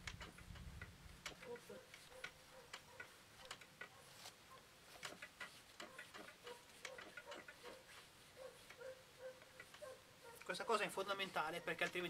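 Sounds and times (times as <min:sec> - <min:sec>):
cloth wiping metal: 0:03.8 - 0:12.0.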